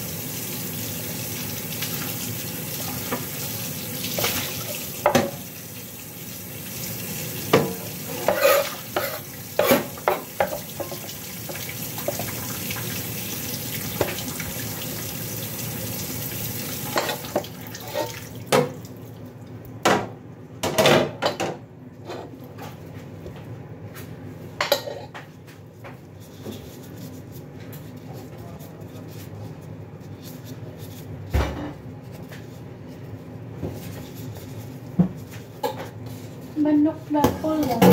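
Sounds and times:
kitchen tap running: 0.0 - 19.0
utensils and dishes clattering: 7.5 - 11.1, 24.6 - 25.2.

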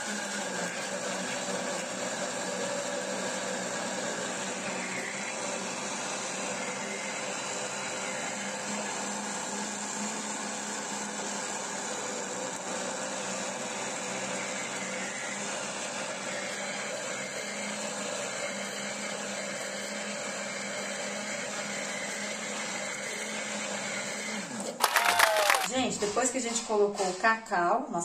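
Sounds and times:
electric blender running: 0.0 - 27.3.

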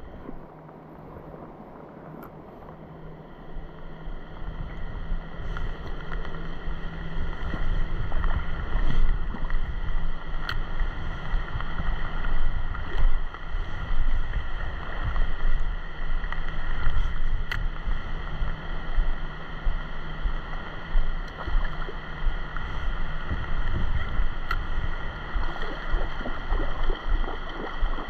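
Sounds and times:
wind buffeting microphone: 3.6 - 28.0.

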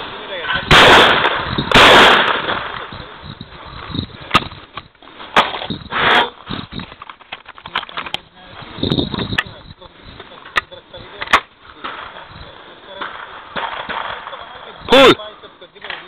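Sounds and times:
loud shotgun shot: 0.0 - 2.9, 13.0 - 15.1.

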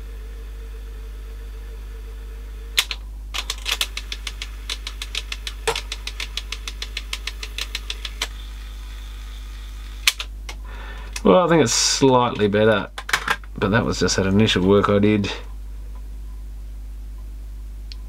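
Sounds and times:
mains hum: 0.0 - 18.0
plastic gears ticking: 2.8 - 8.5
tape mechanism click: 2.8 - 8.5, 10.0 - 11.3.

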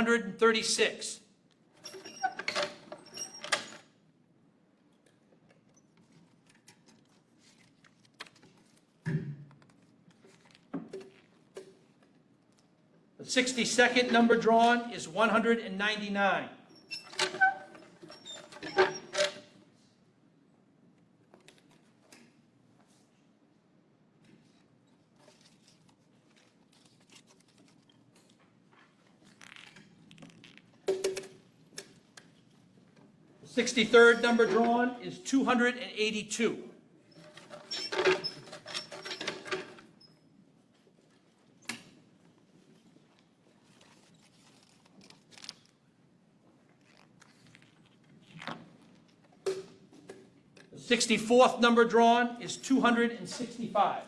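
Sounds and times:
paper slip rustling: 25.2 - 28.4.

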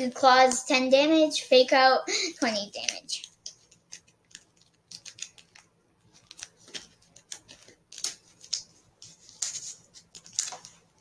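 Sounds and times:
cards rustling and clicking: 2.4 - 11.0.

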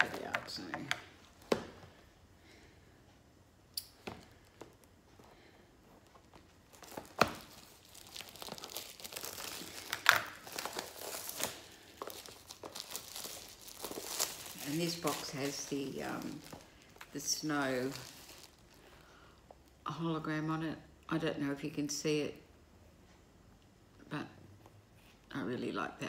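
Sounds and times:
shrink-wrap crinkling and tearing: 6.3 - 19.0.

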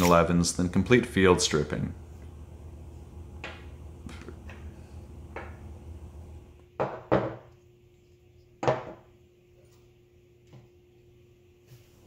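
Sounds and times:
metal knocks on wooden table: 6.8 - 7.5.

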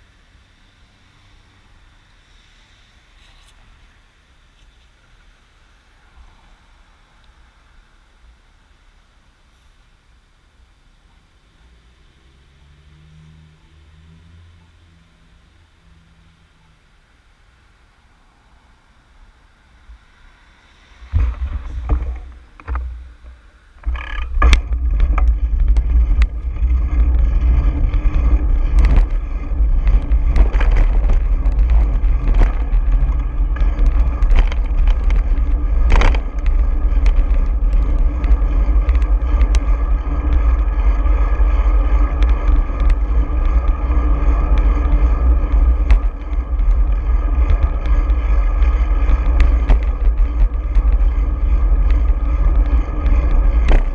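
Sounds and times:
knocks and rattles from road: 18.4 - 53.9
wind buffeting microphone: 19.8 - 53.9.

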